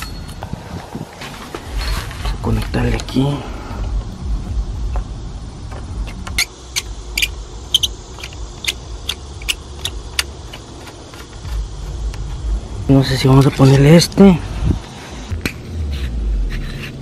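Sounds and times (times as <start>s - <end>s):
low rumble: 0.0s - 10.6s, 11.4s - 17.0s
metal hose coupling clicks and rattles: 6.0s - 11.4s.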